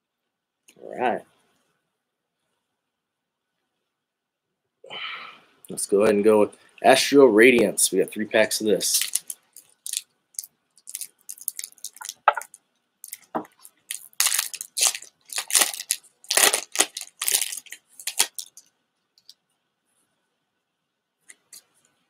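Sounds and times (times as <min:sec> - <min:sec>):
foil wrapper crinkling and tearing: 0:08.9 - 0:18.7.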